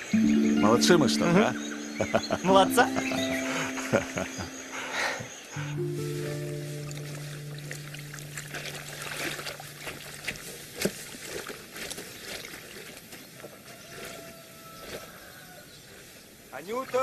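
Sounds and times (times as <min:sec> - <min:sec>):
held musical chord: 0:00.0 - 0:10.3
water splashing and trickling: 0:00.0 - 0:15.3, 0:15.9 - 0:17.0.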